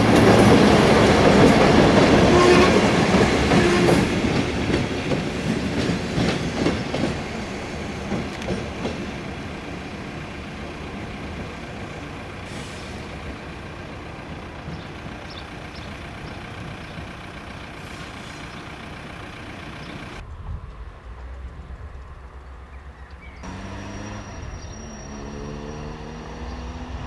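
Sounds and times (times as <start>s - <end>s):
diesel locomotive engine running: 0.0s - 20.2s, 23.4s - 27.0s.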